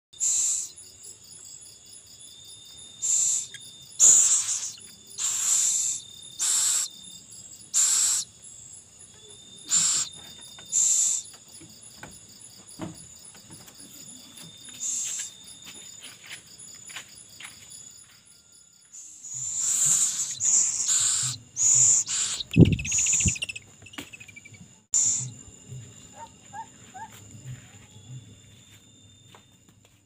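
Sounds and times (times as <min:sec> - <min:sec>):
owl chick hissing begging calls: 0:00.2 - 0:00.8, 0:03.0 - 0:06.9, 0:07.7 - 0:08.3, 0:09.7 - 0:10.1, 0:10.7 - 0:11.3, 0:19.2 - 0:23.6, 0:25.0 - 0:25.3
crickets chirring: 0:00.2 - 0:30.0.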